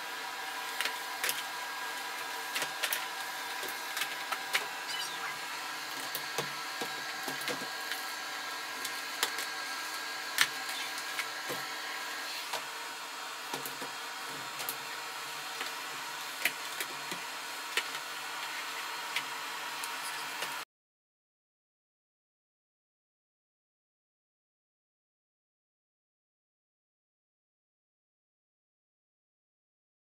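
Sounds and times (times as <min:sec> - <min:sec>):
vacuum cleaner running: 0:00.0 - 0:20.6.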